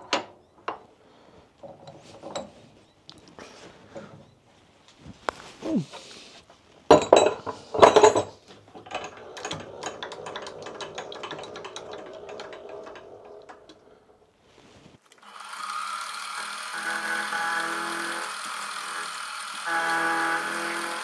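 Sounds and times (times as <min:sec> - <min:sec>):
metal tooling clatter and knocks: 0:01.6 - 0:02.6, 0:06.9 - 0:14.1
milling spindle whirring: 0:08.7 - 0:14.3, 0:15.1 - 0:21.0.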